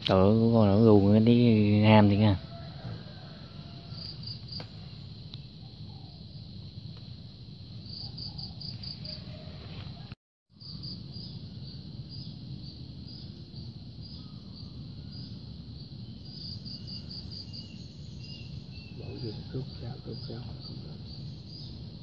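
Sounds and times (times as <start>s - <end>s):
low steady rumble: 0.0s - 8.2s
insects chirping: 0.0s - 22.0s.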